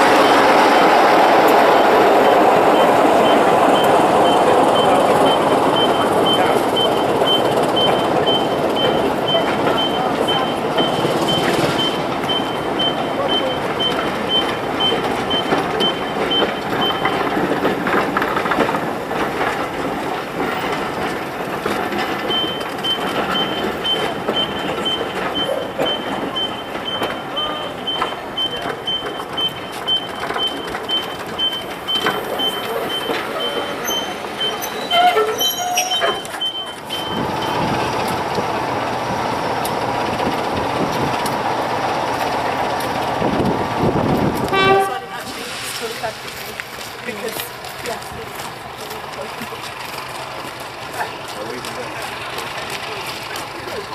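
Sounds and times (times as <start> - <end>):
diesel locomotives idling: 0.0 - 53.9
train wheels rumbling on rails: 0.0 - 53.9
high beep: 1.7 - 17.3, 22.3 - 37.7.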